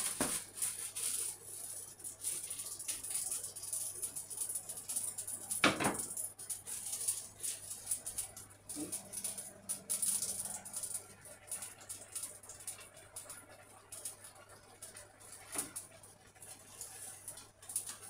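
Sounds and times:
plastic bag rustling: 0.0 - 2.8.

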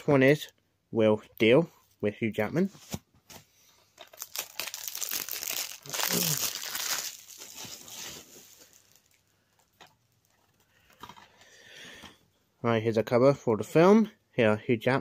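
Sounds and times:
plastic packaging crinkling: 4.0 - 10.6.

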